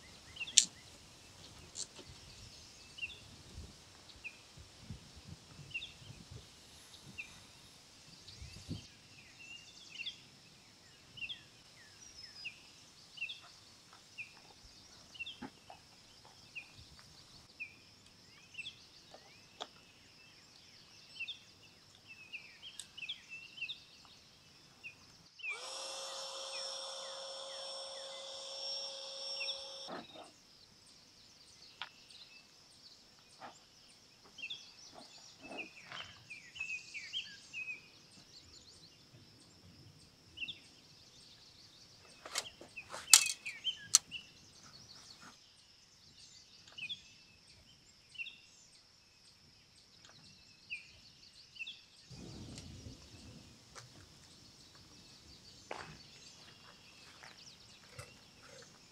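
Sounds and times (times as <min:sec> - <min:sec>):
birds chirping: 0:00.0 - 0:04.6, 0:05.6 - 0:45.5, 0:50.0 - 0:58.9
electric air pump running: 0:25.4 - 0:29.9
faint high buzz: 0:25.4 - 0:30.0.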